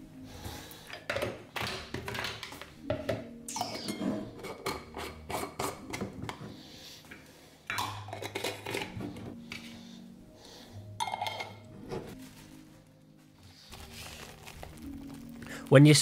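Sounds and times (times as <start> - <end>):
plastic lids screwed onto glass jars: 7.7 - 9.7.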